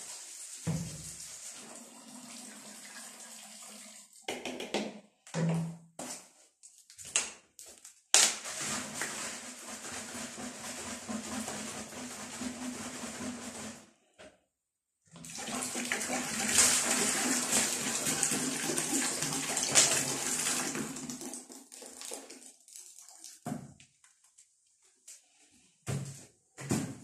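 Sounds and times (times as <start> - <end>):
water pouring into plastic bucket: 0.0 - 4.3, 8.2 - 13.9, 15.1 - 23.7.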